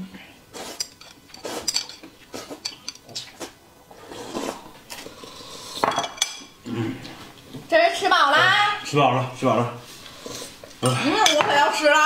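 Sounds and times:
slurping noodles: 0.5 - 5.8, 9.8 - 11.0.

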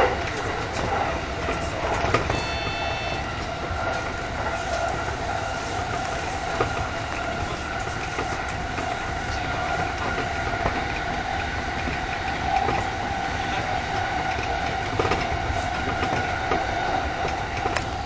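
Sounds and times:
continuous whine: 0.0 - 18.0
train wheels rumbling on track: 0.0 - 18.0
brief high tone: 2.3 - 3.4
clicks over rail joints: 3.1 - 18.0.

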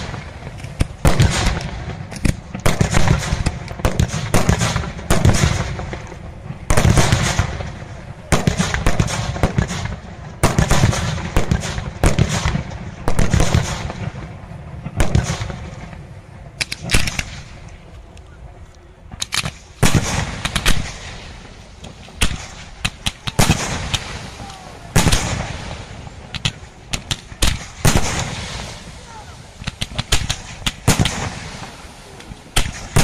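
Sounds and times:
firework shells bursting: 16.6 - 17.8, 19.1 - 33.0.

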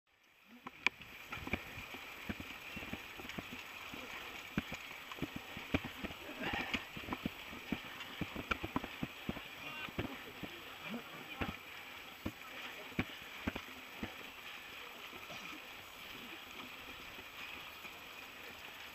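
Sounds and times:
steady hiss: 0.1 - 18.9
mountain bike rattling: 1.0 - 14.8.

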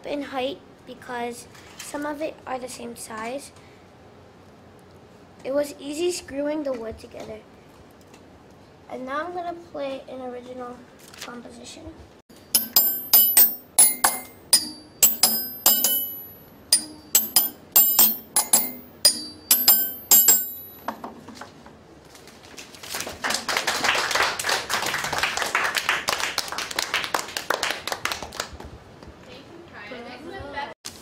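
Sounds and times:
metal wrench xylophone tune: 12.5 - 20.8
children clapping: 22.9 - 28.7.

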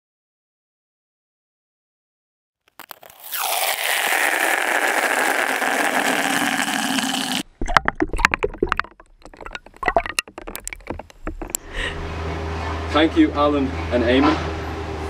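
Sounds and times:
ice cubes clacking and splashing: 2.7 - 11.6
tap water pouring into bucket: 2.8 - 11.6.

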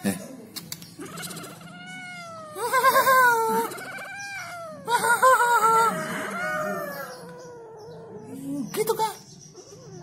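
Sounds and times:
cat meowing: 1.0 - 8.4.

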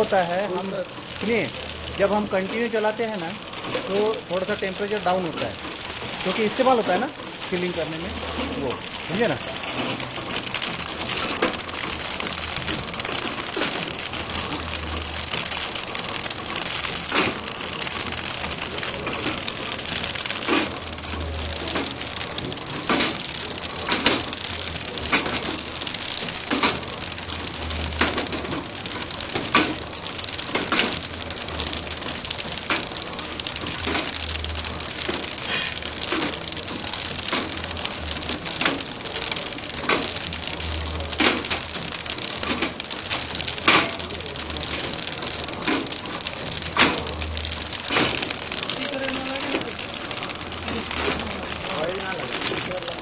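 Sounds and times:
packing machine clatter: 0.0 - 53.0.

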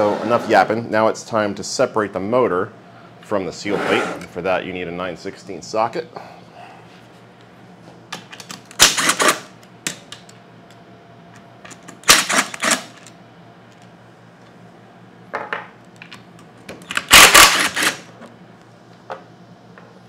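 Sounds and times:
cordless power driver spinning bolts: 17.0 - 18.0.

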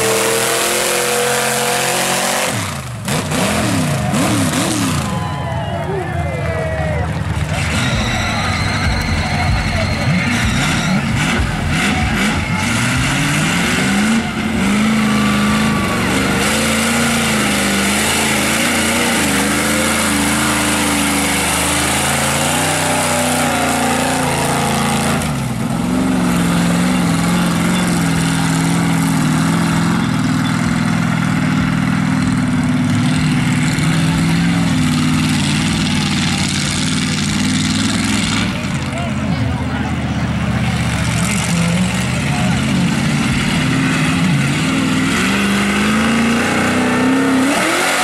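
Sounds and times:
pickup engine revving hard: 0.0 - 5.2, 9.8 - 30.2, 40.8 - 48.0.

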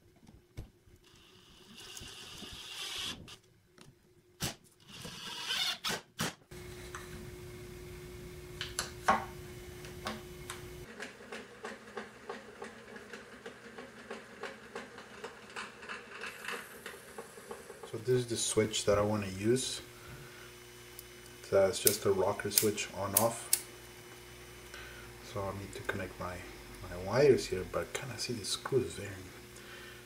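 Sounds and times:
short drill bursts: 4.9 - 6.4
steady motor hum: 6.5 - 30.0.

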